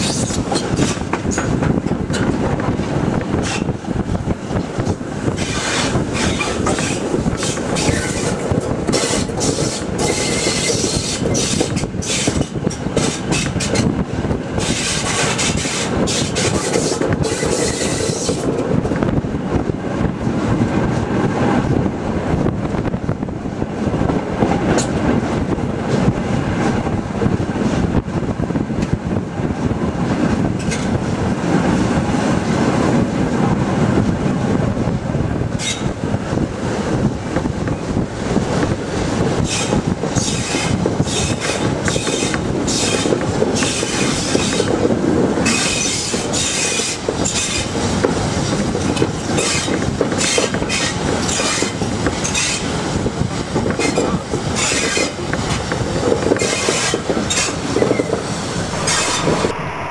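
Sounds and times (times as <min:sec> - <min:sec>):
locomotive wheels rumbling on rails: 0:00.0 - 0:59.9
high-pitched wheel squeal: 0:57.9 - 0:59.9.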